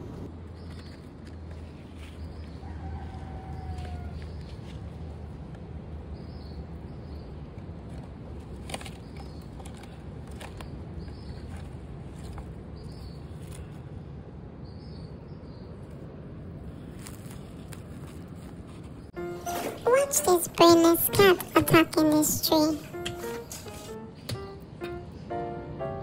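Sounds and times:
rustles and clicks of plant stems: 0:07.9 - 0:13.8, 0:16.7 - 0:19.1.

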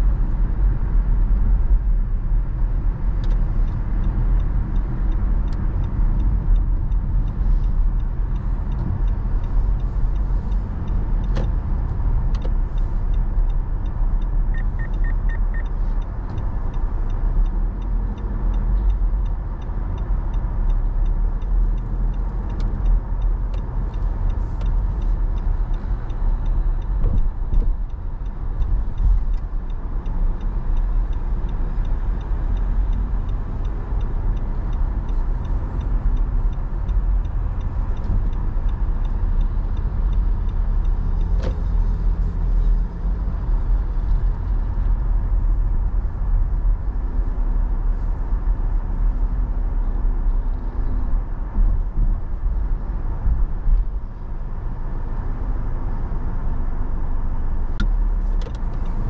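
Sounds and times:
car road and engine rumble: 0:00.0 - 0:59.0
faint ticks: 0:03.2 - 0:45.7.

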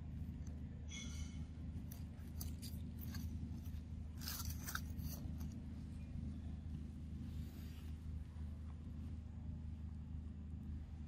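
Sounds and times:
steady low hum: 0:00.0 - 0:11.0
dry crackles and snaps: 0:01.8 - 0:05.7.

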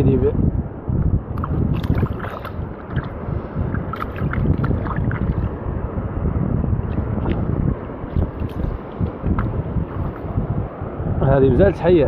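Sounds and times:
wind rumble on microphone: 0:00.0 - 0:12.0
water sloshing and splashing: 0:01.3 - 0:05.6, 0:06.8 - 0:10.4.

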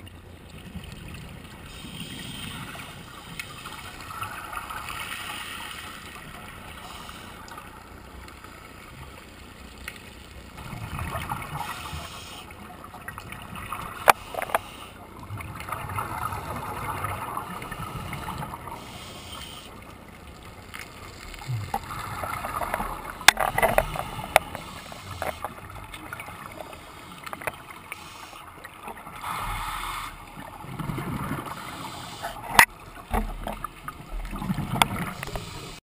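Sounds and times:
regulator breathing hiss: 0:01.7 - 0:03.1, 0:06.8 - 0:07.5, 0:11.6 - 0:12.5, 0:14.2 - 0:15.0, 0:18.2 - 0:19.7, 0:23.8 - 0:25.5, 0:26.7 - 0:28.5, 0:29.2 - 0:30.3, 0:31.4 - 0:32.4, 0:35.2 - 0:35.8
bubbling gurgle: 0:30.2 - 0:31.7.

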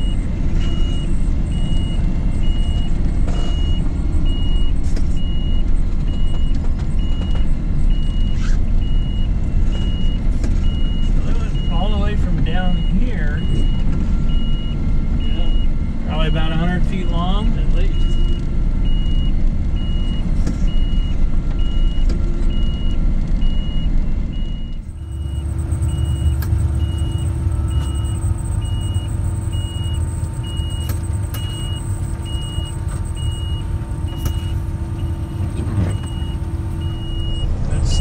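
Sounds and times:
snow vehicle engine running: 0:00.0 - 0:38.0
short high warning beeps: 0:09.0 - 0:21.1, 0:24.4 - 0:38.0.

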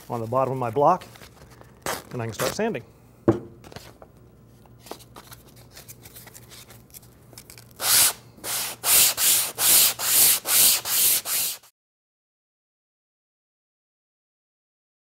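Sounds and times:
faint handling rustles: 0:00.0 - 0:02.8
sandpaper rubbing on wood: 0:07.8 - 0:11.7.

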